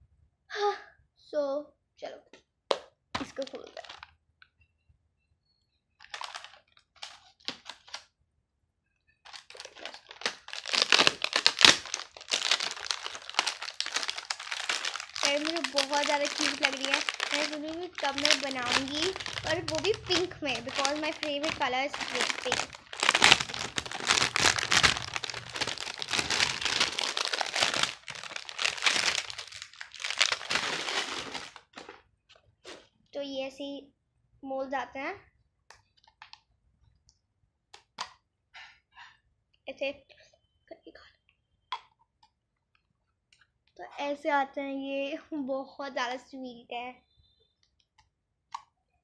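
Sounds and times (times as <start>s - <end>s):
plastic packaging crinkling: 3.2s - 4.2s, 6.0s - 8.1s, 9.2s - 32.0s.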